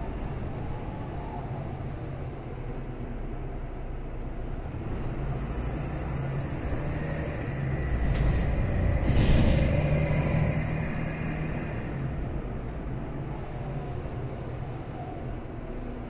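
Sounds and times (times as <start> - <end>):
bus engine humming: 0.0 - 16.0
hiss: 5.0 - 12.1.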